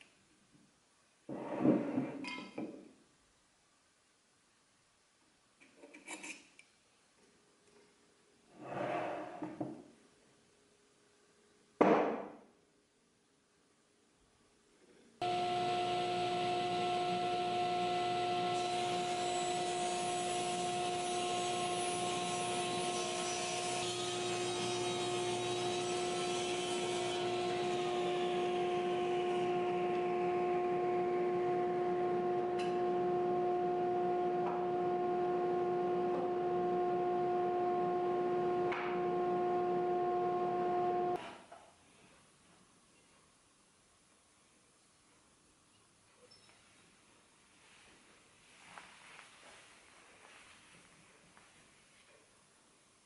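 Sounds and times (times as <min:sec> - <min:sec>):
saw cutting wood: 0:15.2 - 0:41.2
table saw humming: 0:15.2 - 0:41.2.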